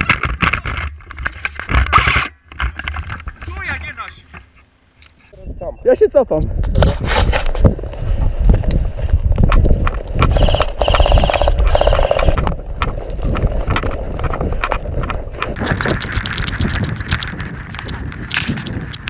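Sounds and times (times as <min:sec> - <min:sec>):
heavy wind: 0:05.3 - 0:19.0
camera handling rumble: 0:06.6 - 0:19.0
running footsteps through dry grass: 0:07.6 - 0:19.0
gear rattling and knocking: 0:09.2 - 0:19.0
fast buzzing rattle: 0:10.2 - 0:12.5.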